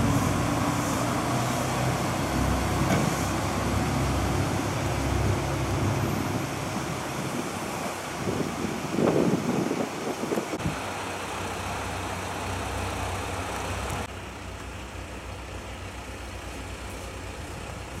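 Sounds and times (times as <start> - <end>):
hiss: 0.0 - 9.6
diesel railcar engine idling: 0.0 - 18.0.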